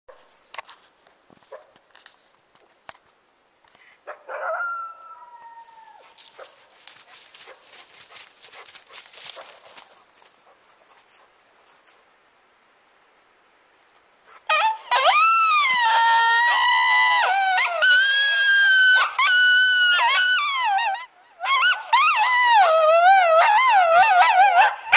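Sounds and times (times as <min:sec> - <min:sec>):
coyote howling: 0:04.3 - 0:06.3, 0:14.5 - 0:24.9
coyote yipping: 0:14.3 - 0:24.9.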